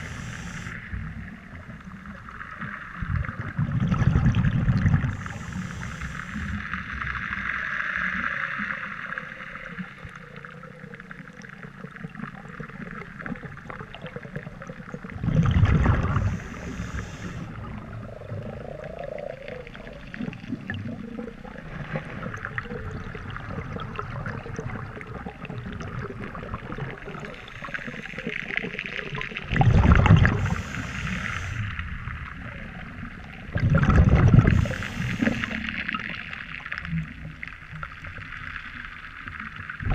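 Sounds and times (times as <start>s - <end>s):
regulator breathing underwater: 0.0s - 0.9s, 5.0s - 6.8s, 16.0s - 19.4s, 30.1s - 31.8s, 34.3s - 36.0s
exhaled bubbles rumbling: 0.0s - 39.9s.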